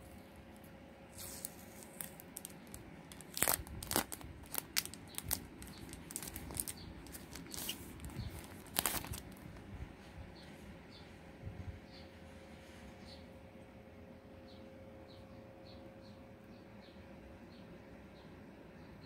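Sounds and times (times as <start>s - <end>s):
plastic film peeling off: 1.2s - 9.6s.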